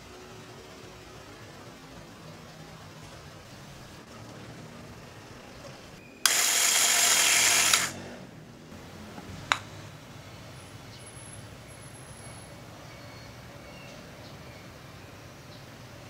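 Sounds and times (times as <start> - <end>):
coffee grinder whirring: 6.2 - 8.0.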